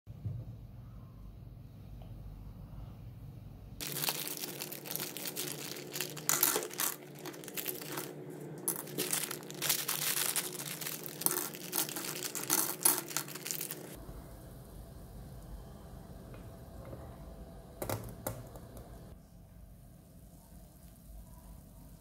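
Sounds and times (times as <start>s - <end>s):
bag crinkling: 3.8s - 14.0s
candies clattering on metal: 3.8s - 14.0s.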